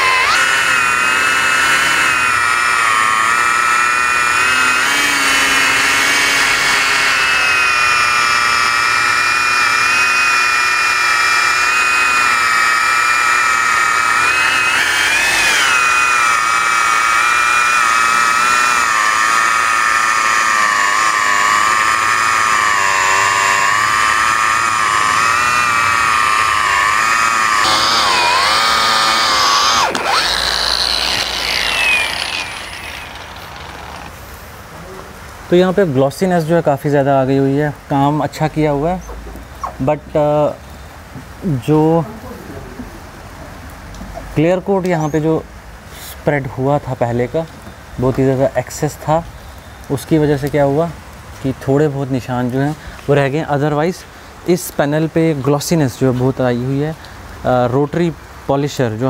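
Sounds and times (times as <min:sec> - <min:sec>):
rotary polisher motor whine: 0:00.0 - 0:34.2.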